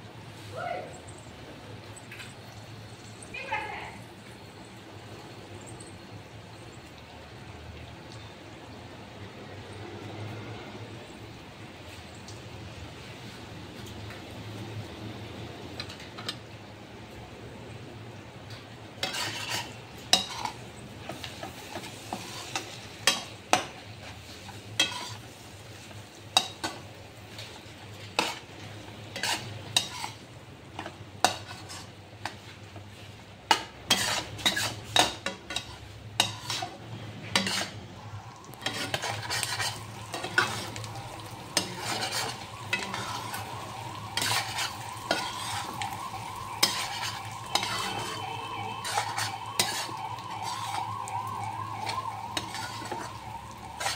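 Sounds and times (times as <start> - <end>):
food sizzling in a wok: 0.0 - 53.9
spatula scraping a pan: 19.0 - 53.9.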